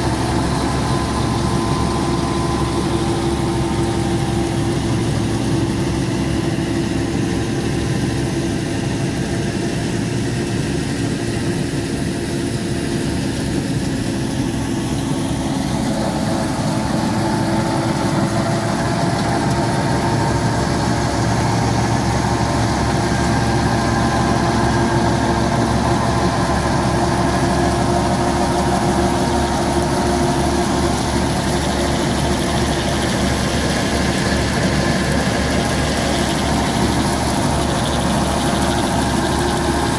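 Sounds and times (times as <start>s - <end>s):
tractor engine running: 0.0s - 39.9s
straw chopper humming: 14.8s - 39.9s.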